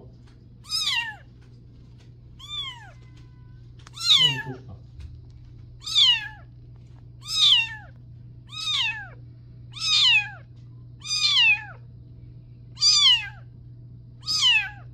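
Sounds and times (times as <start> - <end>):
kitten meowing: 0.6 - 1.3, 2.4 - 3.3, 3.9 - 4.6, 5.8 - 6.5, 7.2 - 11.9, 12.8 - 13.5, 14.2 - 14.9.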